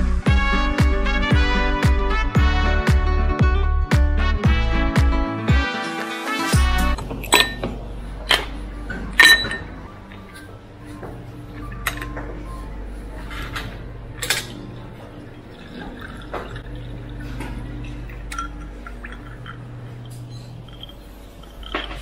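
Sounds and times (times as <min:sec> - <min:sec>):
drinking glasses clinking: 0:07.0 - 0:07.8, 0:09.2 - 0:09.8, 0:15.4 - 0:22.0
juice pouring into glass: 0:14.9 - 0:22.0.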